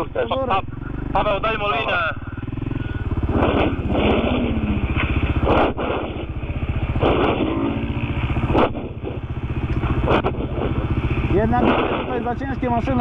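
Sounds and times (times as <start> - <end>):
quad bike engine running: 0.0 - 13.0
bursts of rushing noise: 2.6 - 12.6.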